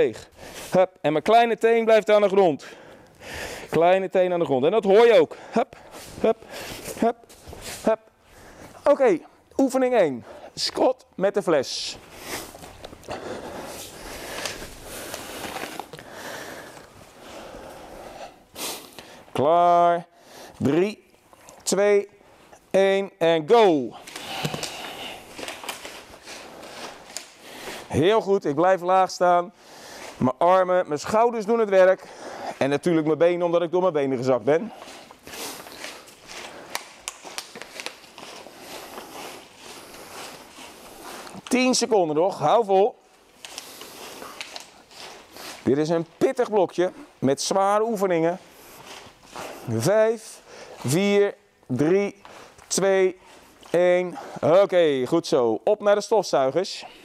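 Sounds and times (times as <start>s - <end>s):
people shuffling on a mat: 5.4s - 8.9s, 11.9s - 18.1s, 24.0s - 27.9s, 34.5s - 41.9s, 43.1s - 51.0s
cloth rustling: 5.8s - 9.5s, 11.5s - 17.8s, 24.0s - 27.9s, 34.6s - 51.1s.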